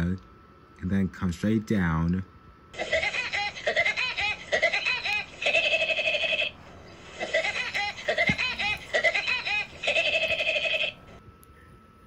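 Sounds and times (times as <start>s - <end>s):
high-pitched cartoon laugh: 2.8s - 6.5s, 7.1s - 11.0s.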